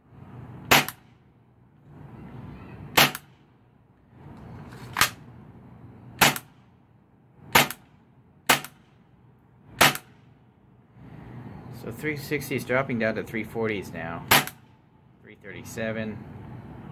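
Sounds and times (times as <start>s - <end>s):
airsoft pistol shots: 0.7s - 1.0s, 2.9s - 3.3s, 6.2s - 6.5s, 7.5s - 7.8s, 8.5s - 8.9s, 9.8s - 10.2s, 14.3s - 14.7s.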